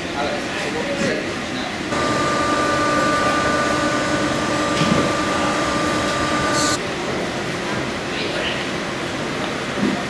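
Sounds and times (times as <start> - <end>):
workshop background noise: 0.4 - 7.1
factory machinery humming: 1.7 - 7.5
high machine whine: 1.9 - 6.8.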